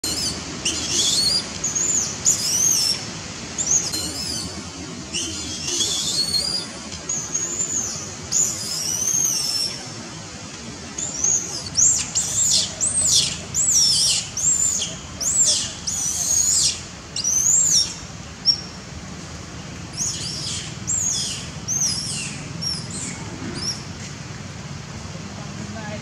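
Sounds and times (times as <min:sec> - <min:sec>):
monkey screaming high squeals: 0:00.0 - 0:03.0, 0:05.2 - 0:06.7.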